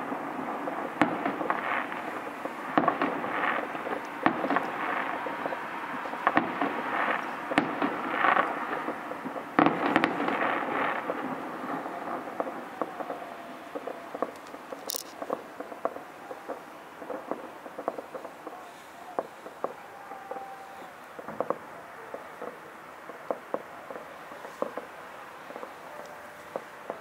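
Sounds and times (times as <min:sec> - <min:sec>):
firecrackers crackling: 0:00.0 - 0:27.0
firework hiss: 0:00.0 - 0:27.0
loud firework bang: 0:00.8 - 0:19.8.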